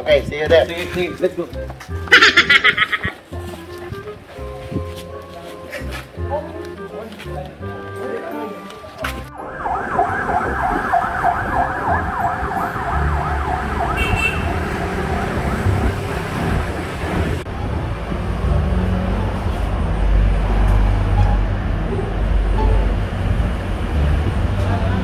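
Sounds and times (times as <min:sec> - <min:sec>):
street traffic rumble: 0:00.0 - 0:25.0
siren yelping: 0:09.3 - 0:16.5.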